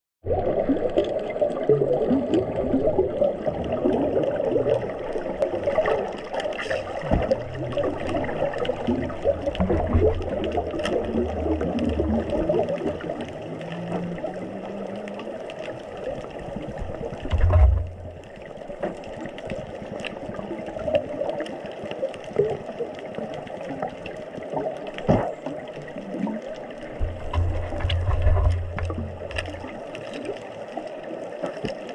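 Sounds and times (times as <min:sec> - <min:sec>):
muffled underwater water rush: 0:00.2 - 0:31.9
underwater crackles and clicks: 0:00.2 - 0:31.9
dull low thump: 0:17.3 - 0:18.1, 0:27.0 - 0:29.4.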